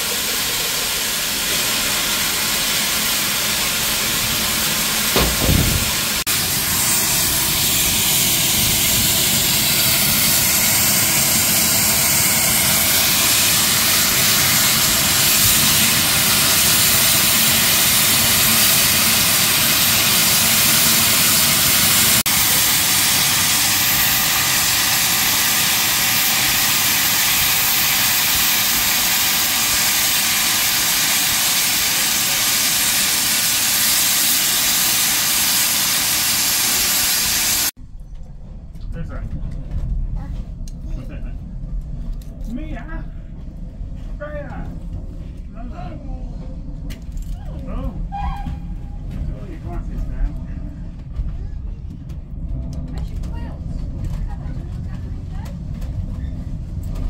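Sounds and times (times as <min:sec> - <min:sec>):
steam hissing from safety valves: 0:00.0 - 0:37.8.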